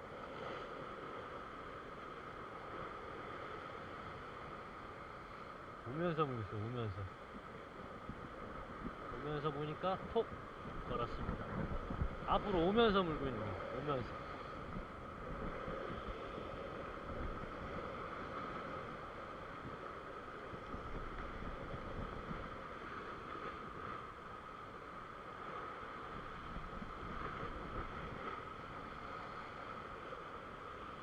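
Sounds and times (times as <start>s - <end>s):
ocean waves breaking on rocks: 0.0s - 31.0s
wind on microphone: 7.0s - 24.2s, 25.4s - 30.1s.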